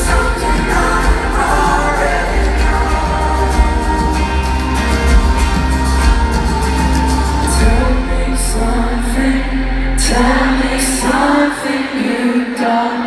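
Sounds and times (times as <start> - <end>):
man singing: 0.0 - 4.7, 7.4 - 13.0
heavy low bass: 0.0 - 11.4
live pop-rock band playing: 0.0 - 11.9.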